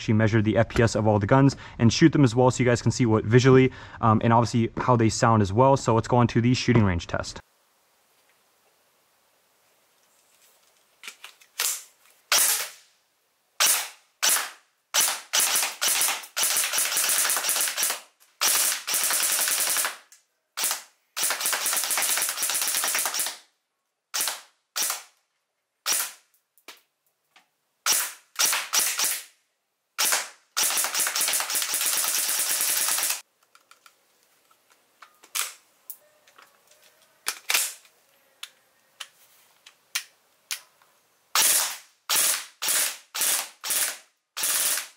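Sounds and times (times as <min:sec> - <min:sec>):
airsoft gun firing: 0:11.6 - 0:12.8, 0:13.6 - 0:23.4, 0:24.2 - 0:25.1, 0:27.9 - 0:29.3, 0:30.0 - 0:33.2, 0:41.4 - 0:44.9.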